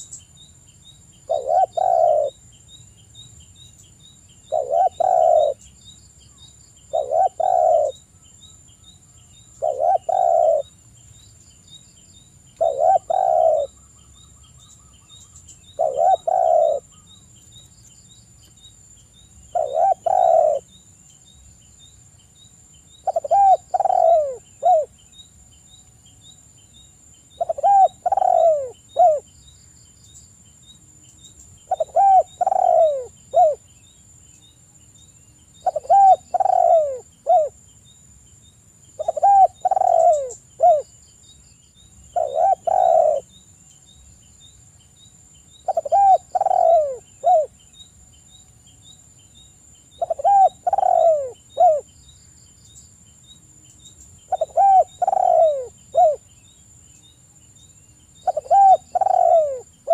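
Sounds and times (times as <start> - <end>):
dove cooing: 1.3 - 2.4, 4.5 - 5.6, 6.9 - 8.0, 9.6 - 10.8, 12.6 - 13.8, 15.7 - 17.0, 19.5 - 20.7, 23.0 - 24.9, 27.4 - 29.3, 31.7 - 33.6, 35.6 - 37.6, 39.0 - 40.9, 42.1 - 43.3, 45.6 - 47.5, 50.0 - 51.9, 54.3 - 56.2, 58.2 - 59.9.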